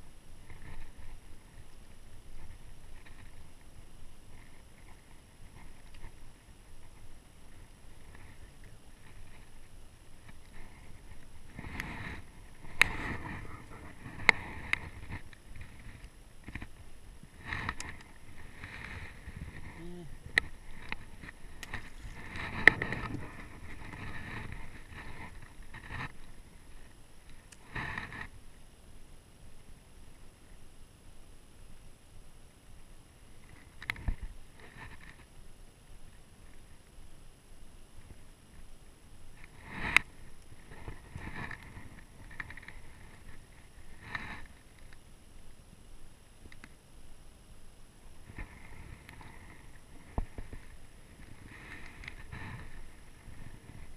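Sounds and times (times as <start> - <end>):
rustling and scuffing of gear: 10.2 - 26.4.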